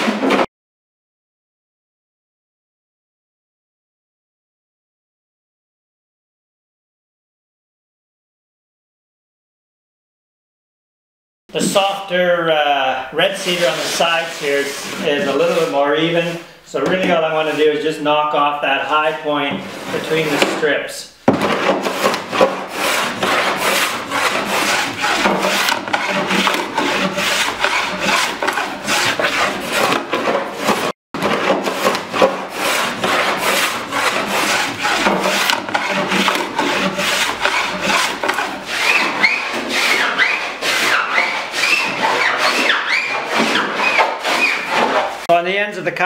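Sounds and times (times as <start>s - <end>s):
hand plane shaving wood: 13.2s - 18.0s, 18.8s - 45.3s.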